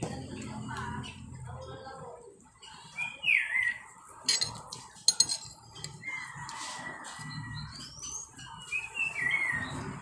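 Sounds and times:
rooster crowing: 6.0 - 7.8.

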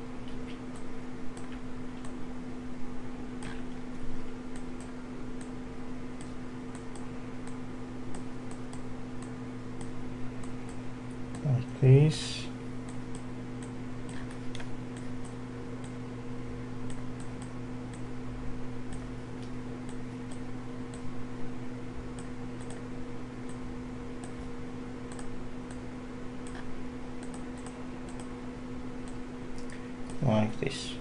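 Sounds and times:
steady low hum: 0.0 - 31.0
computer mouse clicking: 3.4 - 3.7, 12.9 - 16.0, 16.9 - 18.0, 18.9 - 19.1, 22.2 - 22.8, 25.1 - 25.8, 26.4 - 28.3.

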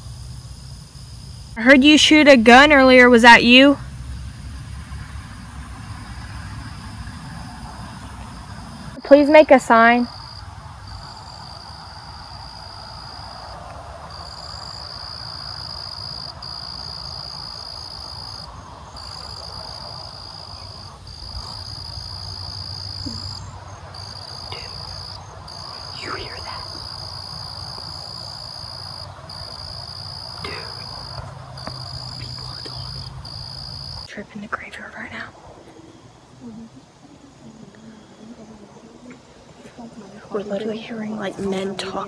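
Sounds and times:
crickets trilling: 0.0 - 42.0.

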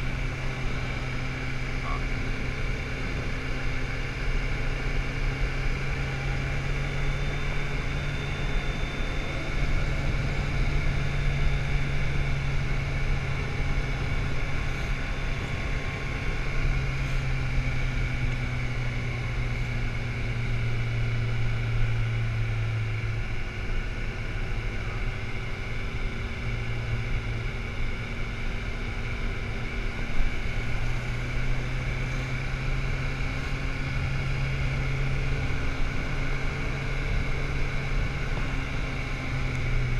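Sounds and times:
motorcycle engine drone: 0.0 - 39.9
wind and road rush: 0.0 - 39.9.

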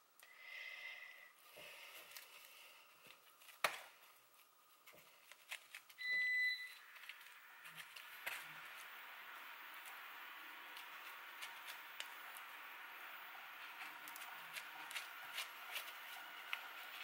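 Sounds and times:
high electronic beep: 6.0 - 6.8.

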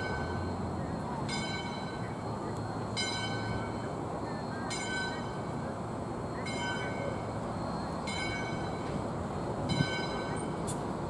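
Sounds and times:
ringing bell: 0.0 - 5.6, 6.2 - 10.6.

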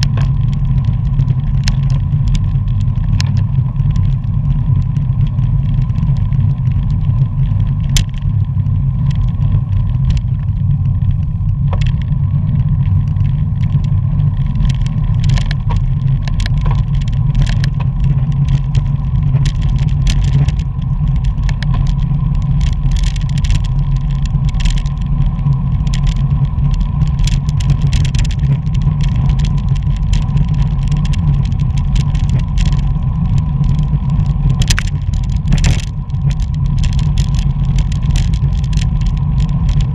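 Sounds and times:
tyre and road noise: 0.0 - 39.9
wind rushing over microphone: 0.0 - 39.9
short sharp clicks and ticks: 34.5 - 39.9.

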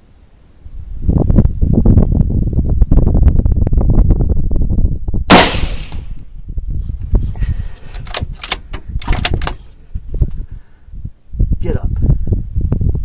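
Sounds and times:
wind on microphone: 0.6 - 13.0
rifle shot: 5.3 - 6.3
sharp clicks: 7.9 - 9.6.

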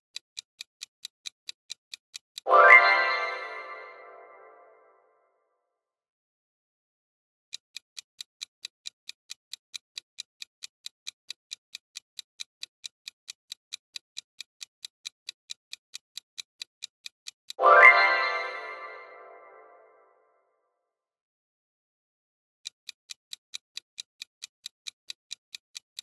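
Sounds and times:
clock ticking: 0.1 - 4.5, 7.5 - 19.8, 22.6 - 26.0.

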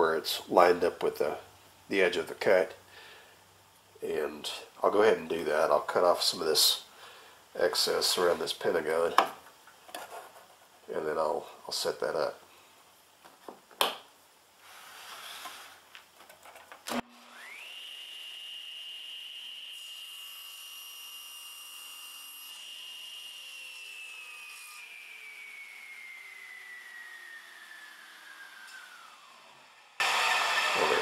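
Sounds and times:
table saw whine: 16.9 - 31.0.

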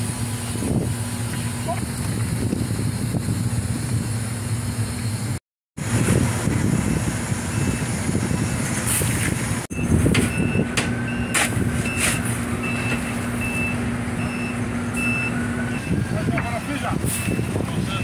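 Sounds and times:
dockside noise: 0.0 - 18.0
engine hum: 0.0 - 18.0
reversing alarm beeping: 9.7 - 16.3, 17.2 - 17.5.

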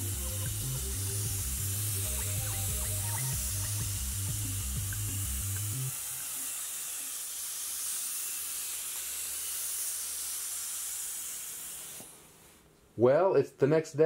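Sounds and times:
background music: 0.0 - 6.3
paint spray gun hissing: 0.0 - 12.7.

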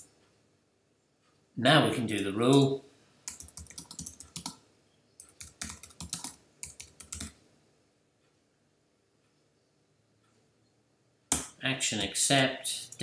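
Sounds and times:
keyboard typing clicks: 3.2 - 4.6, 5.2 - 7.4.

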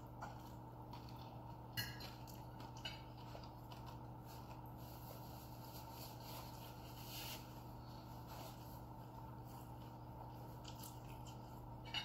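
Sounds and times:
fingers picking at food on plate: 0.0 - 4.8, 9.0 - 12.0
steady low hum: 0.0 - 12.0.

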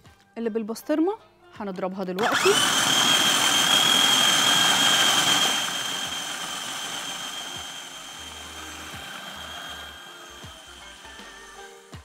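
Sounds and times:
food processor motor whirring: 2.2 - 11.6.

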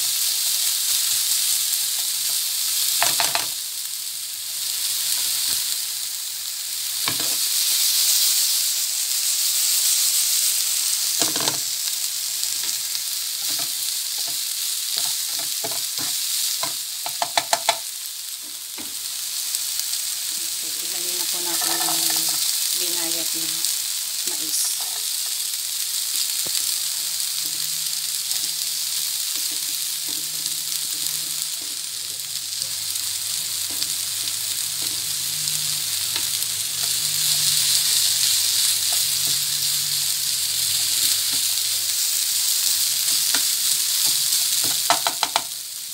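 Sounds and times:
onion sizzling in oil: 0.0 - 45.9
sharp taps on a pan: 17.0 - 17.8, 44.7 - 45.5.

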